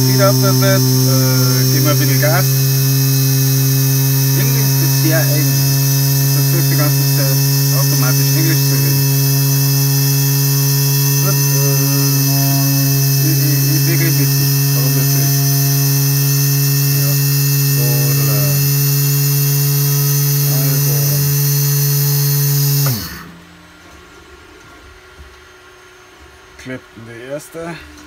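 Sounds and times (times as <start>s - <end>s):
small electric motor humming: 0.0s - 23.8s.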